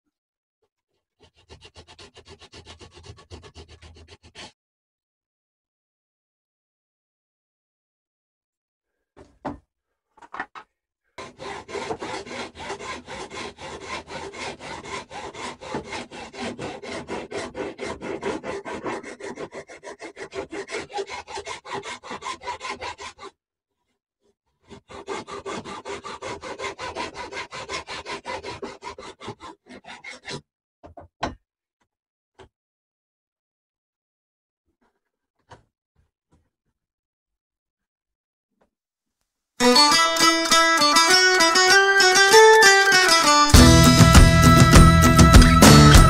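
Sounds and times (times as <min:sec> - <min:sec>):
hand file rasping on wood: 0:00.8 - 0:04.6, 0:11.2 - 0:30.4.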